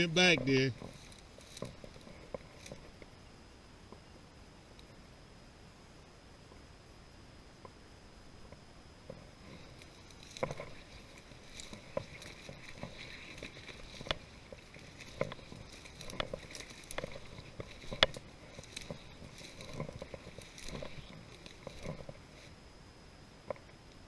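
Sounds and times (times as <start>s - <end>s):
footsteps crunching through dry grass: 0.0s - 3.2s, 9.0s - 22.6s
stems rustling against legs: 0.0s - 3.2s, 8.4s - 22.7s.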